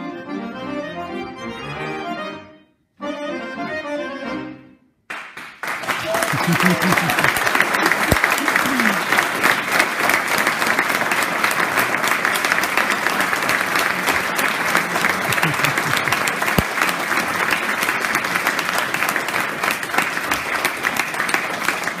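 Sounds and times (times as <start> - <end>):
audience applauding: 5.1 - 22.0.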